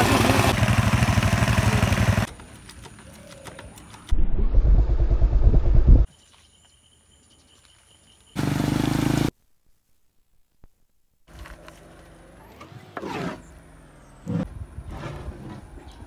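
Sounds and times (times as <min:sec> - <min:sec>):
motorcycle engine running: 0:00.0 - 0:02.4
loud low rumble: 0:04.1 - 0:06.1.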